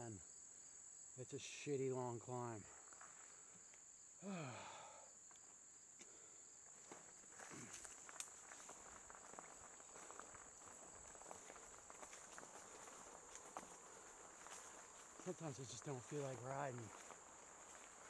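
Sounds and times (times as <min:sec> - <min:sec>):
crickets droning: 0:00.0 - 0:18.0
leaves and twigs crackling: 0:06.7 - 0:18.0.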